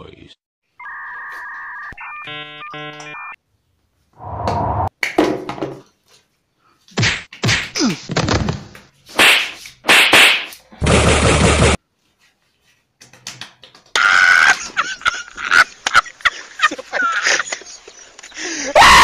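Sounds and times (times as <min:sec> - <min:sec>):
electronic beeping jingle: 0:00.8 - 0:03.4.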